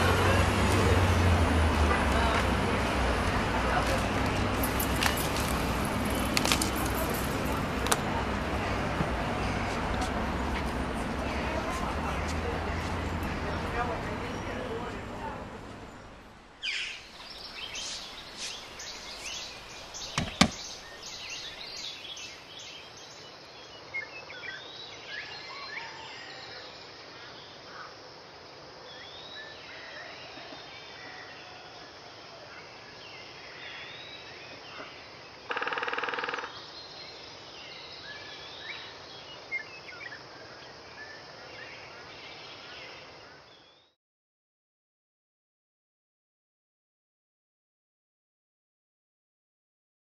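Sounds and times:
steady background hiss: 0:13.4 - 0:35.5
bird chirps: 0:15.8 - 0:26.4
sharp knock: 0:20.2 - 0:20.6.

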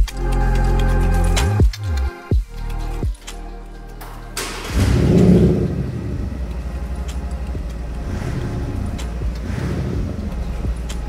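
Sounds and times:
diesel engine starting and idling: 0:03.9 - 0:11.0.

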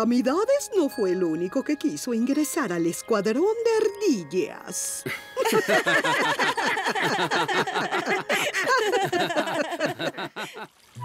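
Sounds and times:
cartoon voices laughing: 0:05.4 - 0:10.6.

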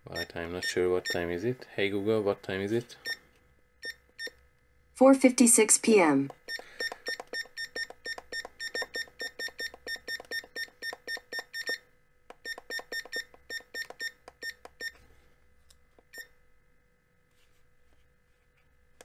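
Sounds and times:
digital clock short beeps: 0:06.4 - 0:11.8, 0:12.5 - 0:14.9.

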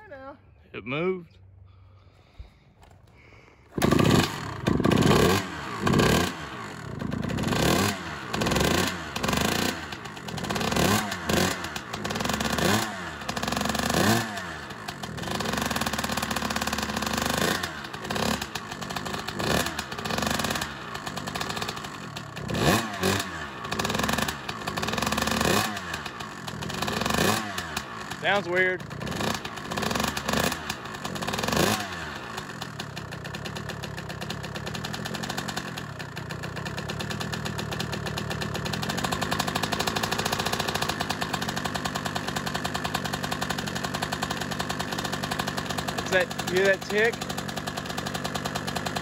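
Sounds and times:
dirt bike engine revving: 0:03.6 - 0:49.0.

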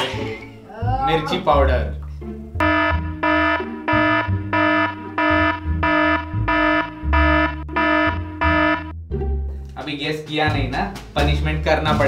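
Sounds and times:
low bass line: 0:00.8 - 0:09.7
electronic beeping: 0:02.6 - 0:08.9.

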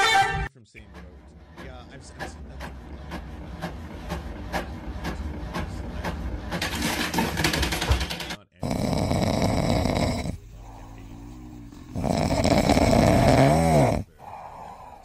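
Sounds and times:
cat snoring: 0:08.6 - 0:15.0.

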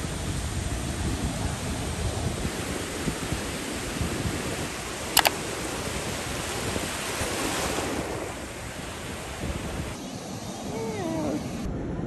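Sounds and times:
ocean surf washing: 0:00.0 - 0:11.7
wind on microphone: 0:00.0 - 0:12.0
sharp clicks: 0:05.2 - 0:05.4.

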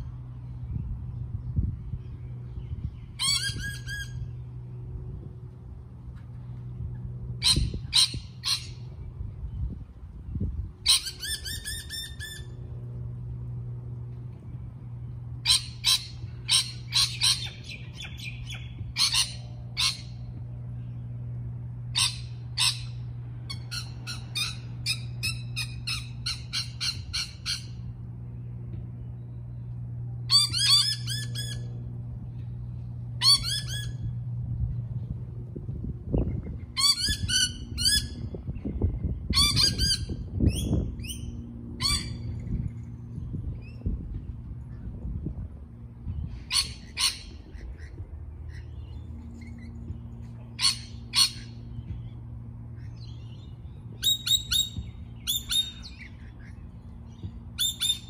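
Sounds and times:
steady low hum: 0:00.0 - 0:58.0
lorikeets screeching: 0:03.0 - 0:04.4, 0:07.4 - 0:08.9, 0:10.8 - 0:12.6, 0:15.4 - 0:20.3, 0:21.9 - 0:27.8, 0:30.3 - 0:31.7, 0:33.2 - 0:34.1, 0:36.7 - 0:38.3, 0:39.3 - 0:42.6, 0:46.2 - 0:49.8, 0:50.5 - 0:52.1, 0:52.8 - 0:58.0.

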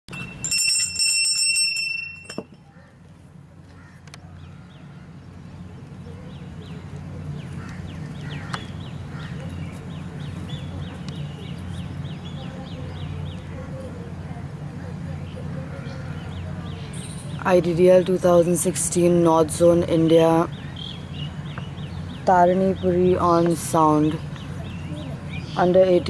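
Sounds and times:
hand bell ringing: 0:00.1 - 0:02.6
low steady hum: 0:00.1 - 0:26.0
bird chirping: 0:20.4 - 0:26.0.

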